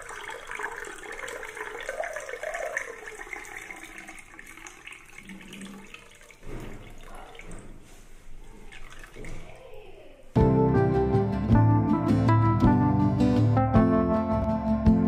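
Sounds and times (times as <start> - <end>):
juice pouring into a glass: 0.0 - 7.8.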